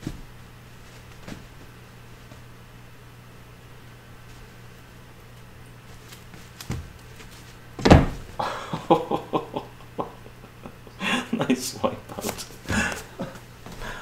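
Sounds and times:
faint steady hum: 0:00.0 - 0:14.0
kitten landing with a thump: 0:07.8 - 0:08.4.

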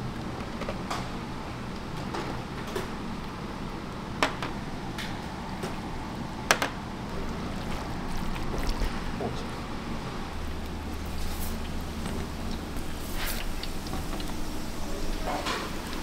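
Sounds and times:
kitchen clacks and knocks: 0:04.2 - 0:04.6.

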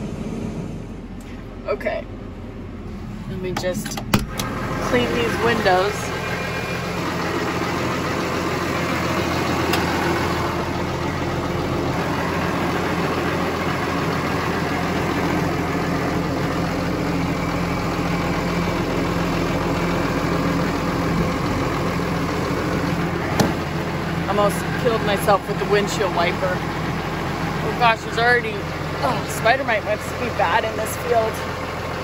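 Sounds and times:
tractor diesel engine idling: 0:00.0 - 0:32.0.

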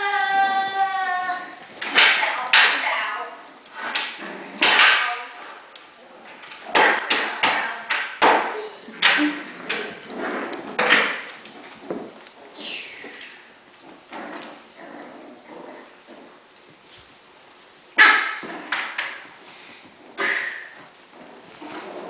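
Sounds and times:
puppies scuffling on wooden floor: 0:09.0 - 0:14.8, 0:15.8 - 0:22.0.

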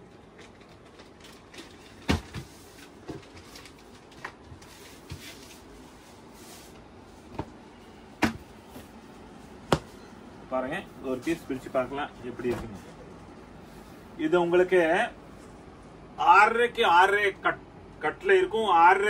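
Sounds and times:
sharp knocks: 0:09.7 - 0:09.9.

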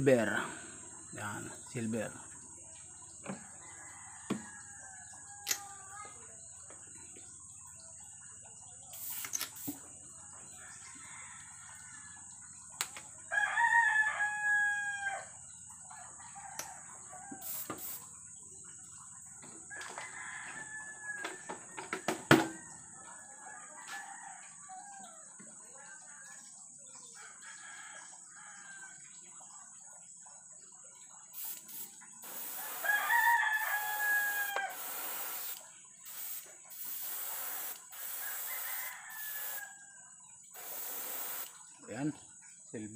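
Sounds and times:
rooster crowing: 0:03.4 - 0:06.0, 0:13.3 - 0:15.4, 0:16.0 - 0:18.0, 0:19.7 - 0:22.8, 0:23.5 - 0:25.2, 0:31.4 - 0:39.9
airbrush spraying hiss: 0:08.9 - 0:09.8, 0:17.4 - 0:18.1, 0:31.4 - 0:39.6, 0:40.6 - 0:41.6.

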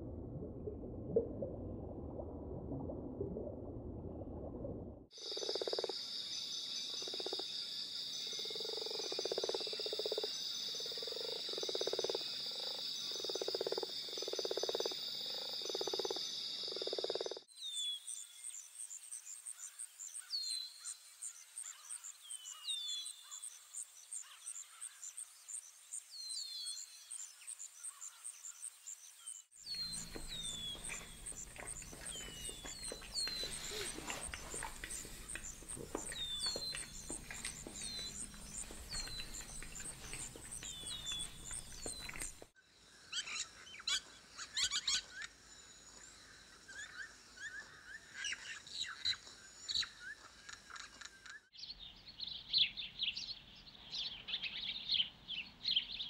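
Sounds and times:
low hum: 0:00.0 - 0:05.1
high insect drone: 0:05.2 - 0:17.4
frogs croaking: 0:05.2 - 0:17.5, 0:29.6 - 0:51.4
falling chirps: 0:29.7 - 0:42.4.

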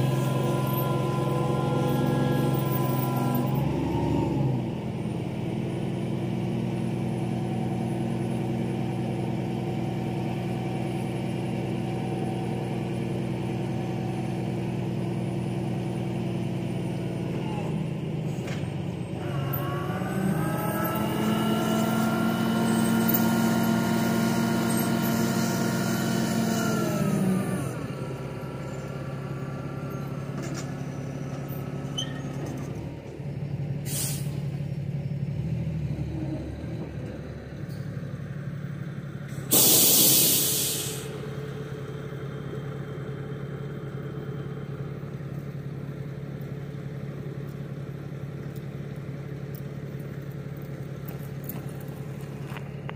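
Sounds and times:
truck diesel engine revving: 0:00.0 - 0:45.1
air brakes hissing: 0:33.8 - 0:34.5, 0:39.3 - 0:41.3
short hiss of air: 0:33.9 - 0:34.4, 0:39.3 - 0:41.2.

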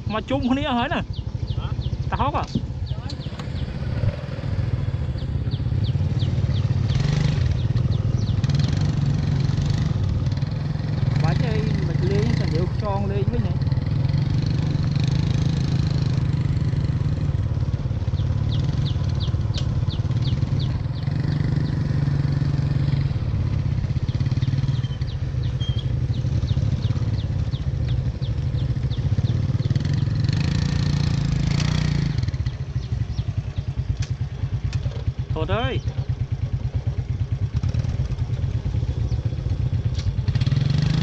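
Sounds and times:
wind and road noise: 0:00.0 - 0:41.0
small motorbike engine: 0:00.4 - 0:41.0.

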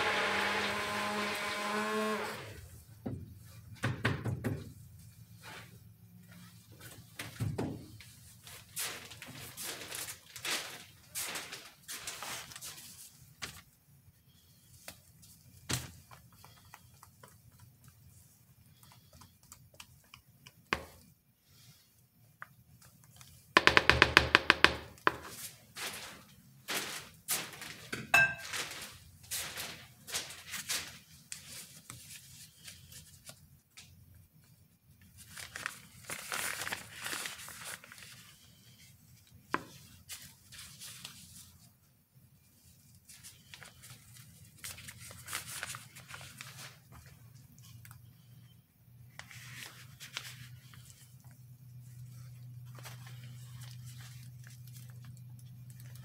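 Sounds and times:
plastic bag crinkling: 0:08.5 - 0:13.1, 0:25.8 - 0:31.6, 0:35.1 - 0:38.4
taps and knocks: 0:23.6 - 0:25.3.

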